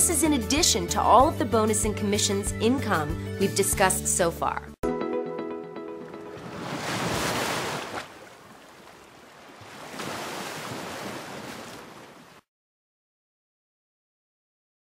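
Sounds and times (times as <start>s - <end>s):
ocean waves rushing in: 6.0s - 12.4s.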